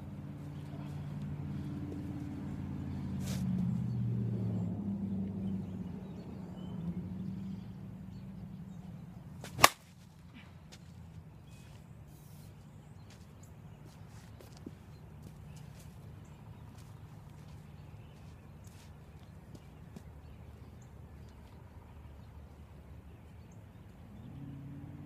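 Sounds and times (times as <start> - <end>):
bat hitting softball: 9.4 - 9.9.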